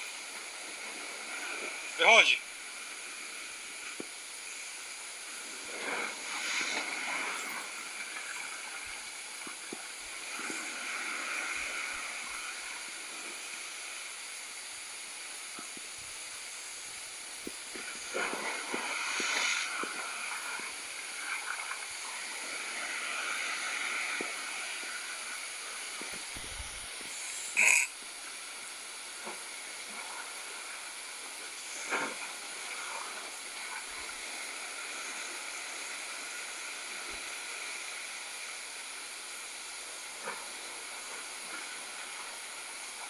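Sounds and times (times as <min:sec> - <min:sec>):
waves breaking against rocks: 0:00.0 - 0:14.1, 0:17.3 - 0:27.7, 0:29.1 - 0:38.1.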